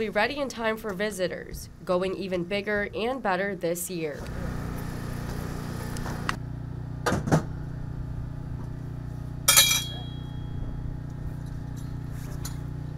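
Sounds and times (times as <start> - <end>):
steady low hum: 0.0 - 12.9
loud metallic clank: 9.5 - 10.3.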